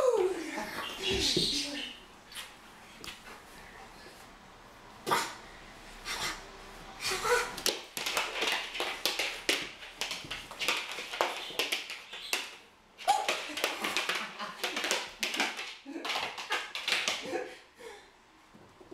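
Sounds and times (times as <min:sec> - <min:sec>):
dog claws scrabbling on wooden floor: 0:07.6 - 0:17.3.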